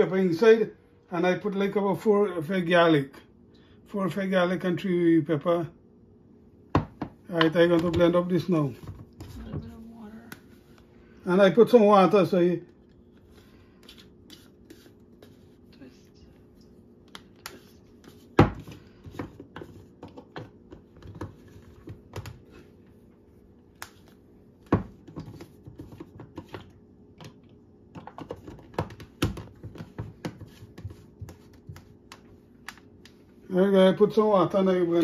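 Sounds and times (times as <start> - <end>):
faint steady hum: 0.0 - 35.0.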